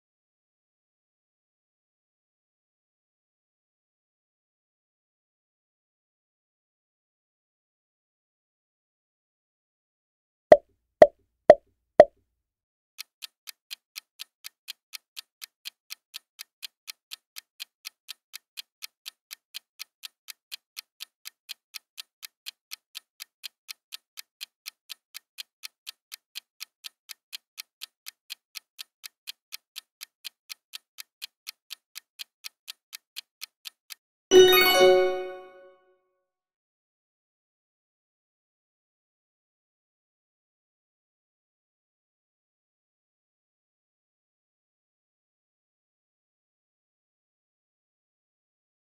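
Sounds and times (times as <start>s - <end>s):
clock ticking: 13.0s - 35.5s.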